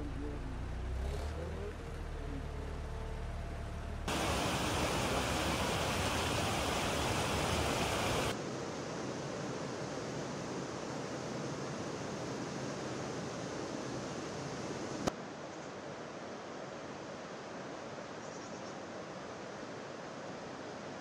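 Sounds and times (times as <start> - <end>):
low hum: 0.0 - 8.3
wind: 0.0 - 21.0
floodwater rushing: 4.1 - 8.4
loud bright hiss: 4.1 - 8.4.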